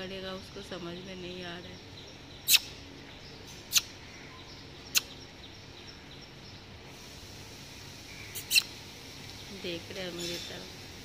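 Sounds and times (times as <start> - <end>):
outdoor background noise: 0.0 - 11.0
kissing squeaks with lips: 2.5 - 2.7, 3.7 - 3.9, 8.4 - 8.7.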